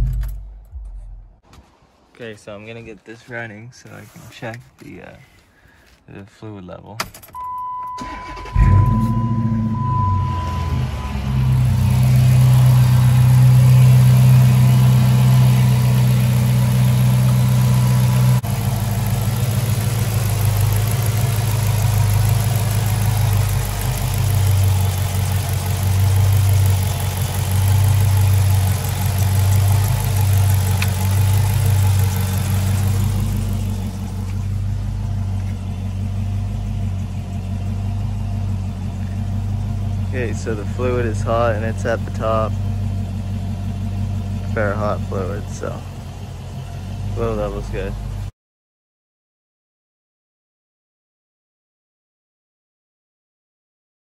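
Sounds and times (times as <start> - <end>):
car engine idling: 8.0 - 48.3.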